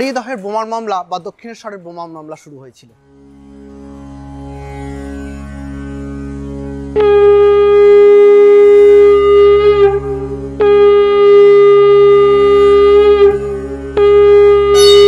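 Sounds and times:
low musical drone: 0:03.0 - 0:15.0
long held melody notes: 0:03.2 - 0:15.0.

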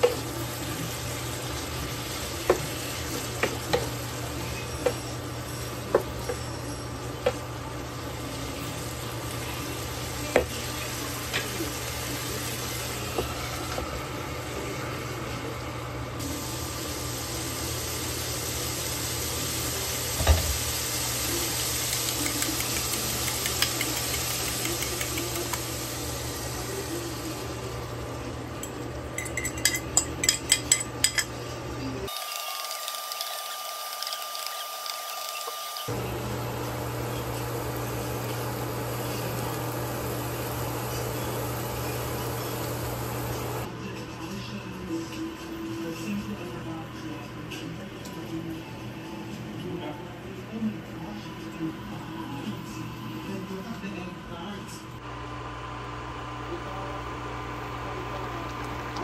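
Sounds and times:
vegetables sizzling in a pan: 0:00.0 - 0:30.4, 0:32.1 - 0:43.7.

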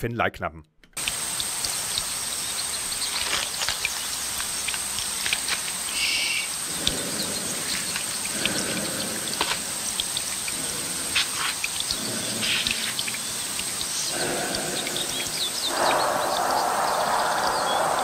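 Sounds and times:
scattered ticks: 0:01.0 - 0:18.0
steady hiss with high whine: 0:01.0 - 0:18.0
short low animal calls: 0:05.9 - 0:18.0.

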